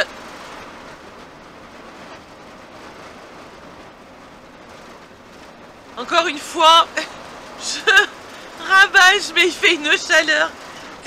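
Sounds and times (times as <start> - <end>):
road and engine noise: 0.0 - 11.0.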